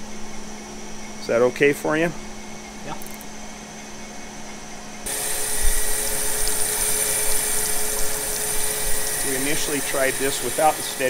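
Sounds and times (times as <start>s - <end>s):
grinder low hum: 0.0s - 11.0s
steady grinding of metal: 5.1s - 11.0s.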